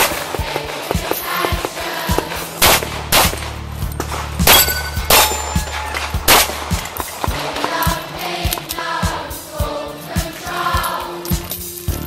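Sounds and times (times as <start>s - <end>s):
pistol shots: 2.6s - 7.3s.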